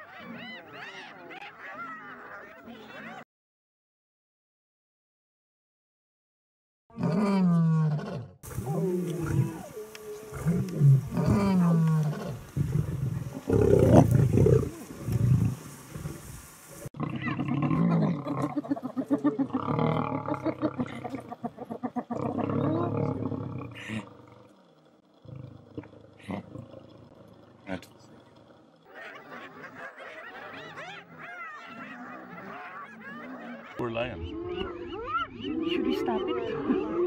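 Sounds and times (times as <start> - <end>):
hyenas calling: 0.0 - 3.0, 8.4 - 16.3, 17.0 - 37.0
lion growling and snarling: 6.9 - 16.3, 16.9 - 33.8.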